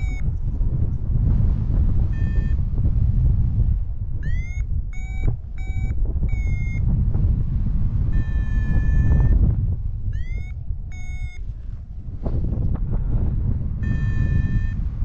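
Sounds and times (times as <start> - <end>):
variometer beeping: 0.0 - 0.4, 2.1 - 2.6, 4.2 - 7.0, 8.1 - 9.4, 10.1 - 11.5, 13.8 - 14.8
wind rush on microphone: 0.0 - 15.0.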